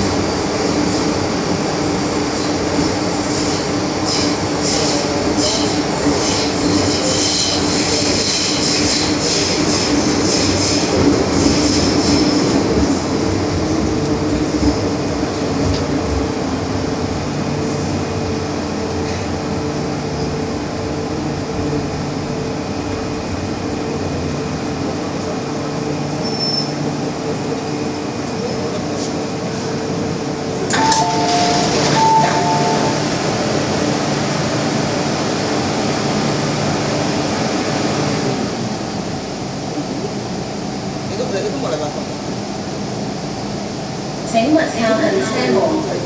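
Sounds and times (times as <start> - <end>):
wheel and track rumble: 0.0 - 46.0
train traction motor whine: 29.4 - 40.7.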